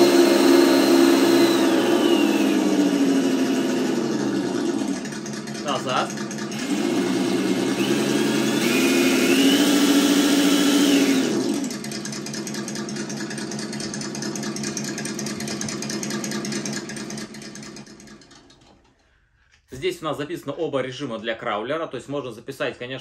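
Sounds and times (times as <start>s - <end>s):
simulated engine revving from speaker: 0.0s - 5.0s, 5.6s - 11.7s.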